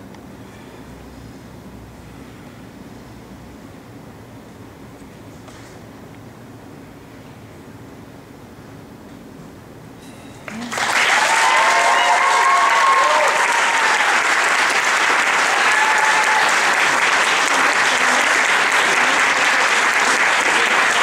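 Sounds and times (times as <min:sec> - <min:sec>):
audience applauding: 0:10.5 - 0:21.0
shouts and cheers: 0:10.9 - 0:14.4, 0:15.4 - 0:17.0.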